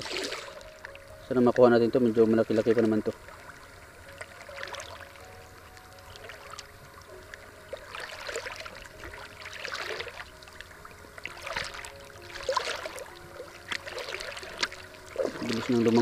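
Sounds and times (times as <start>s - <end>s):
seawater sloshing around wading legs: 0.0s - 0.7s, 2.4s - 5.2s, 7.7s - 16.0s.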